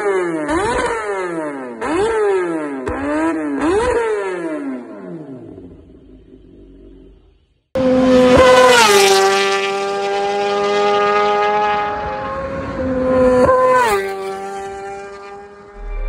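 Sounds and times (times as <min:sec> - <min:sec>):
motorcycle passing at speed: 0:07.8 - 0:16.0.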